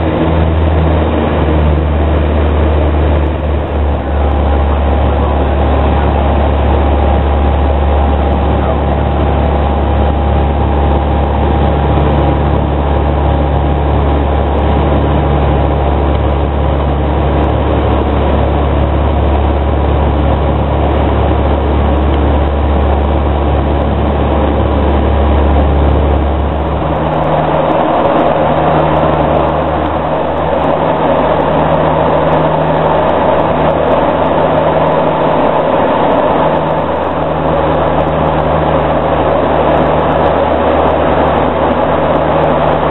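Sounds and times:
deep hum: 0.0 - 42.9
steady tones: 0.0 - 42.9
turboprop engines droning: 0.0 - 42.9
hissy rushing sound: 25.2 - 30.9.

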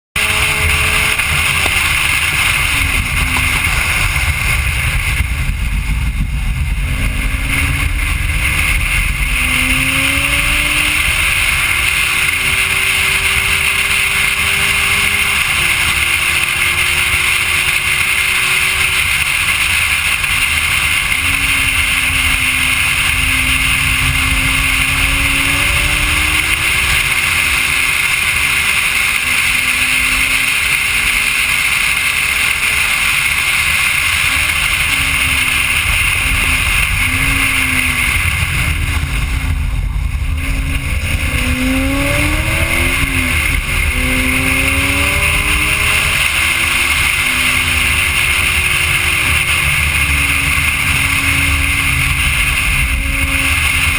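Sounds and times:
car engine revving: 0.0 - 53.9
wind and road noise: 0.2 - 53.9.

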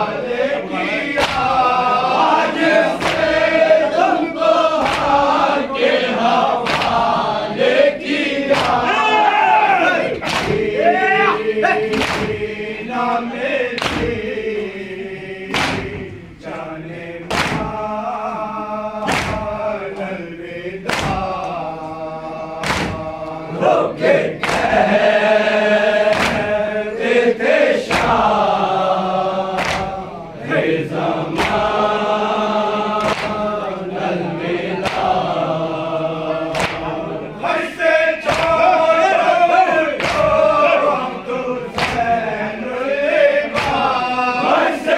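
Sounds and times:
men chanting in unison: 0.0 - 44.9
hand slaps on chest: 1.2 - 1.5, 3.0 - 3.3, 4.8 - 5.2, 6.6 - 7.0, 8.5 - 8.8, 10.2 - 10.7, 11.9 - 12.4, 13.8 - 14.2, 15.5 - 16.1, 17.3 - 17.8, 19.0 - 19.6, 20.9 - 21.6, 22.6 - 23.1, 24.4 - 24.8, 26.1 - 26.5, 29.6 - 30.0, 31.4 - 31.7, 33.0 - 33.4, 34.8 - 35.1, 36.5 - 36.9, 38.2 - 38.6, 40.0 - 40.4, 41.7 - 42.1, 43.5 - 43.9.

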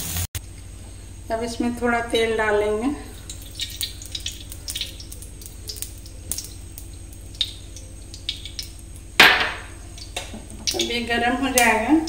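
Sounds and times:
oil pouring into pan: 3.0 - 11.0
oil crackling and popping: 3.0 - 12.0.

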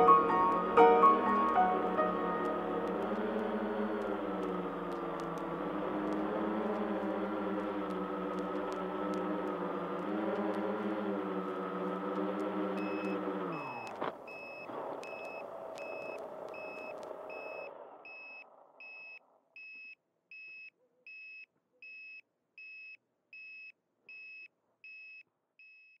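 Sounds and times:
drone motors spinning down: 0.0 - 19.0.

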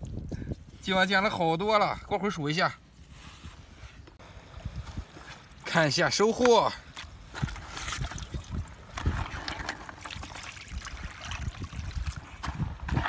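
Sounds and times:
water sloshing in a bucket: 4.2 - 13.0.

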